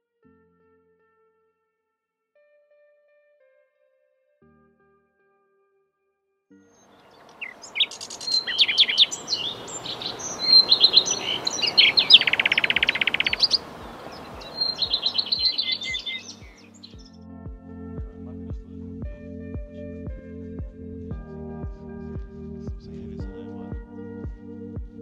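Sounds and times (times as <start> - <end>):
bird trill: 6.8 - 17.1
songbirds singing: 6.8 - 17.1
outdoor hiss: 7.2 - 16.6.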